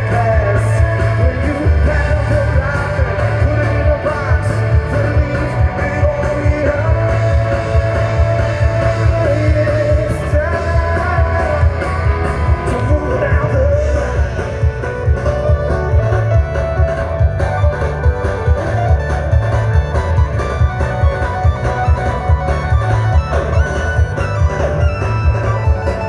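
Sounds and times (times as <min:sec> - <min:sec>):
person singing: 0:00.0 - 0:14.8
bass guitar: 0:00.0 - 0:26.0
drums with heavy beat: 0:00.0 - 0:26.0
electric guitars: 0:00.0 - 0:26.0.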